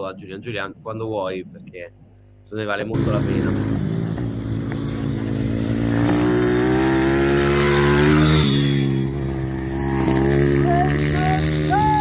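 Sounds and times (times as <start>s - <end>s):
motorcycle engine revving: 2.9s - 12.0s.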